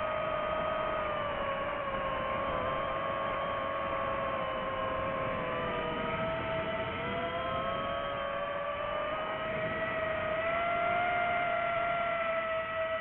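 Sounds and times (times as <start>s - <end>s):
quadcopter motors whining: 0.0s - 13.0s.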